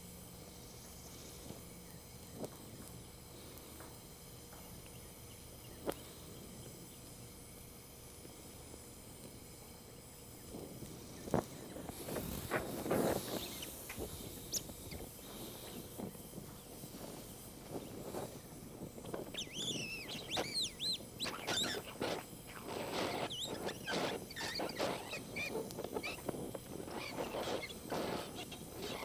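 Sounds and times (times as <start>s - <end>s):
torch flame hissing: 0.0s - 29.0s
flux crackling and sputtering: 10.4s - 29.0s
high squeaky chirps: 13.3s - 13.8s, 19.2s - 29.0s.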